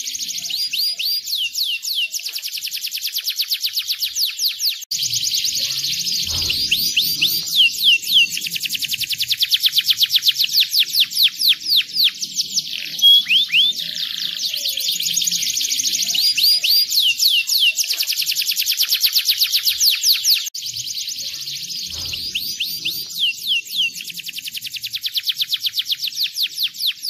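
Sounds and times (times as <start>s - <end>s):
canary singing trills: 0.0s - 27.0s.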